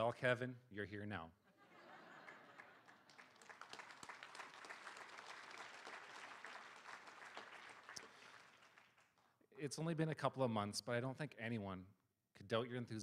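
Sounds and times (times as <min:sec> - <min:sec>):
audience applauding: 0:02.2 - 0:09.3.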